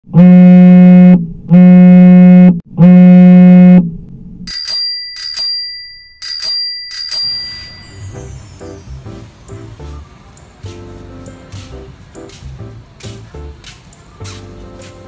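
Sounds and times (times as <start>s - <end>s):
loud buzzer blasts: 0.1s - 3.8s
bell ringing double strikes: 4.5s - 9.9s.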